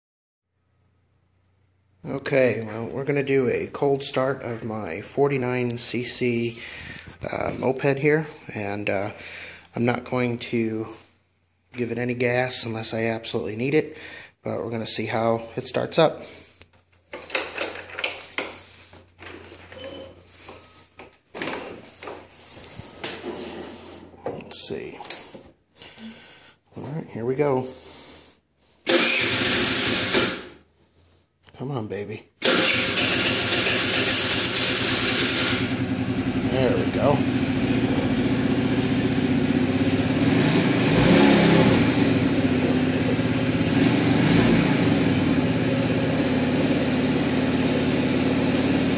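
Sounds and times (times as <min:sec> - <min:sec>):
moped engine idling: 0:32.7 - 0:48.9.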